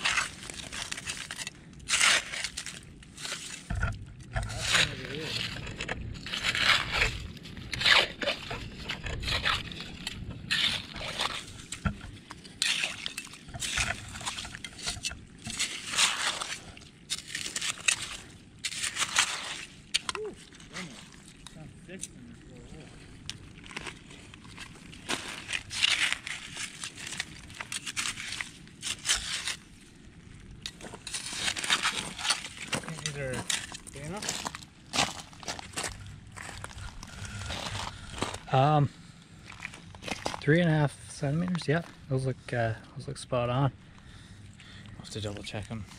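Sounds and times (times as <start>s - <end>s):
hand tool scraping through wet gravel: 0.0s - 3.7s, 4.4s - 11.9s, 12.5s - 21.3s, 23.7s - 29.7s, 30.6s - 38.4s.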